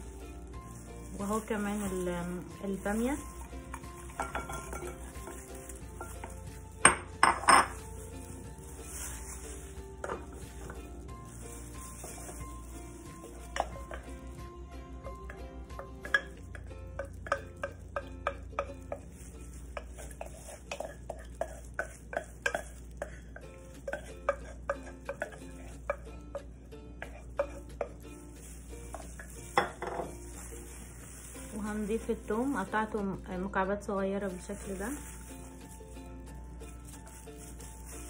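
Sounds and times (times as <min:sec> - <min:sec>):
spoon scraping in saucepan: 0:17.2 - 0:26.0.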